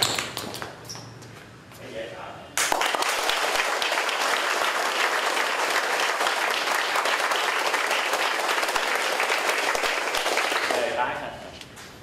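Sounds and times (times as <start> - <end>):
crowd applause: 2.6 - 11.0.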